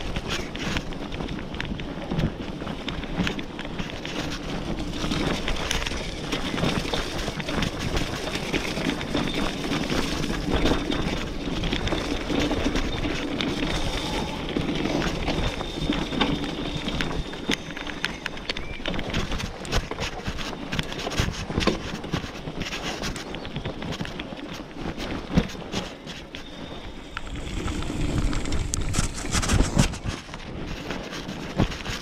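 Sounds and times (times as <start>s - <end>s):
bike clicks and rattles: 0.0s - 32.0s
bike tyres rolling on dirt: 0.0s - 32.0s
wind on microphone: 0.0s - 32.0s.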